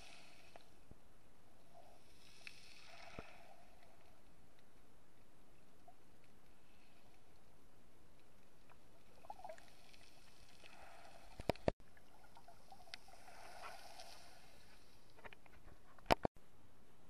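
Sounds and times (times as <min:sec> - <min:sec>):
underwater hiss and murmur: 0:12.3 - 0:15.0.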